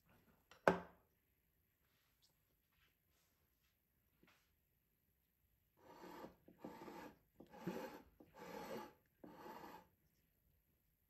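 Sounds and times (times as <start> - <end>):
spatula scraping cream: 5.8 - 10.0.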